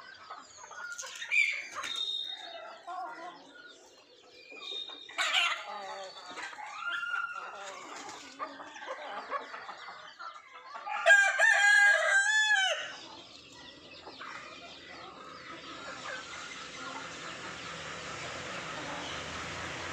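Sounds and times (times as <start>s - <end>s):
hens clucking: 0.0s - 19.9s
rooster crowing: 10.9s - 12.9s.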